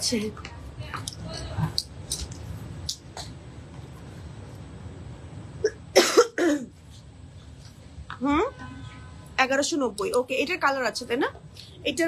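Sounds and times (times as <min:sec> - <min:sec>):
person coughing: 0:05.7 - 0:06.7.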